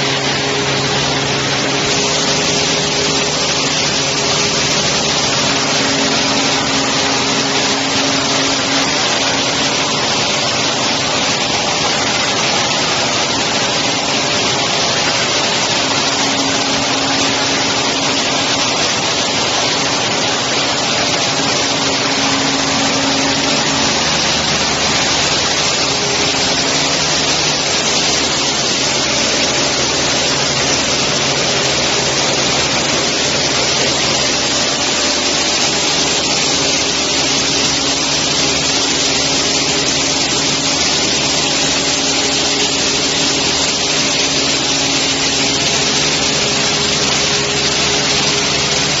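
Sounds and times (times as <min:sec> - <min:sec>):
machinery hissing: 0:00.0 - 0:49.0.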